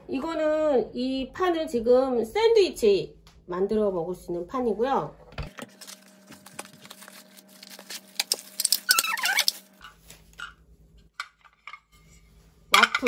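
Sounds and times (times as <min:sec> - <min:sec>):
packaging squeak: 0:05.7 - 0:09.8.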